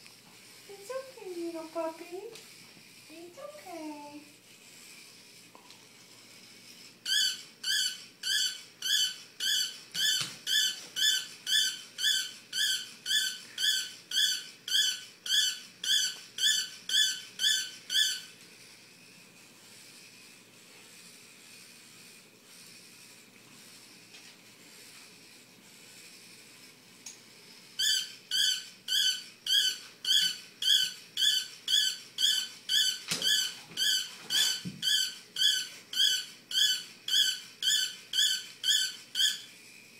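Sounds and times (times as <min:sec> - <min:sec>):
robot toy dog squeaking: 0:07.1 - 0:18.3, 0:27.6 - 0:39.5.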